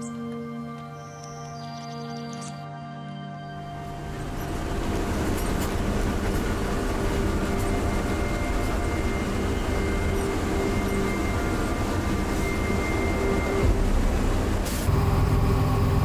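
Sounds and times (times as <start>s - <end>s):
bus engine and road drone: 3.8s - 16.0s.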